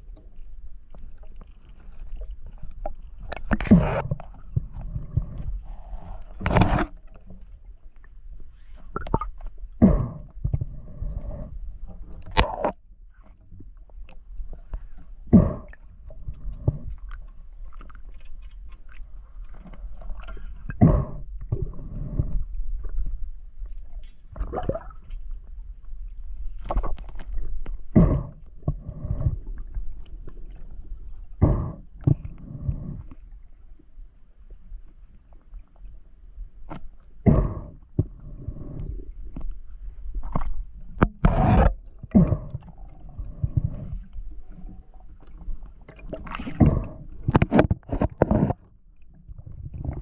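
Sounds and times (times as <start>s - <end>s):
underwater low rumble: 0.0s - 50.0s
knocks and scrapes on spear: 6.4s - 7.0s, 41.0s - 42.3s, 46.6s - 48.6s.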